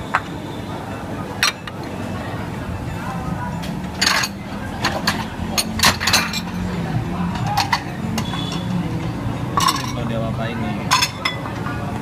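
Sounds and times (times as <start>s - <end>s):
bowls and utensils clinking: 1.4s - 1.9s, 3.7s - 10.1s, 10.8s - 11.6s.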